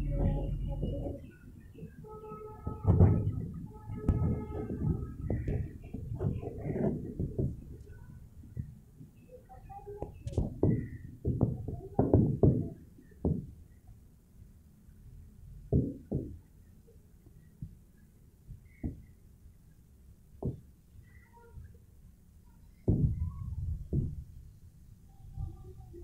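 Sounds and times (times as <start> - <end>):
dull thumps and knocks: 2.6 - 7.9, 10.2 - 13.5, 15.7 - 16.4, 20.4 - 20.7, 22.8 - 24.2.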